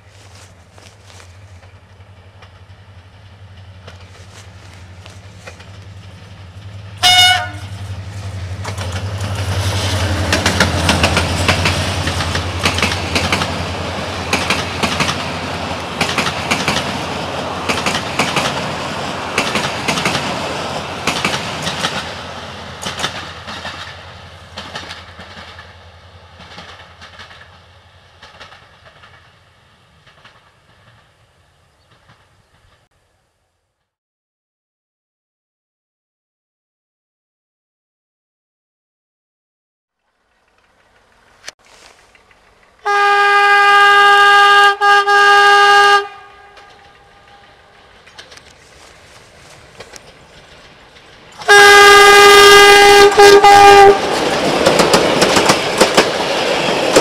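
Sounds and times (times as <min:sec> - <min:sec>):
locomotive engine droning: 0:00.0 - 0:32.8, 0:40.0 - 0:57.0
wheels clattering over rail joints: 0:00.7 - 0:07.0, 0:07.7 - 0:29.4, 0:46.5 - 0:51.6, 0:53.0 - 0:57.0
train horn blast: 0:07.0 - 0:07.9, 0:42.8 - 0:47.4, 0:51.4 - 0:54.1.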